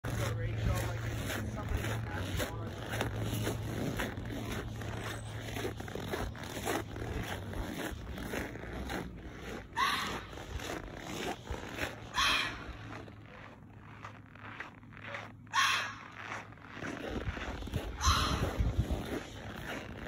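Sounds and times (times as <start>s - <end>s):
footsteps crunching in snow: 0.0s - 20.0s.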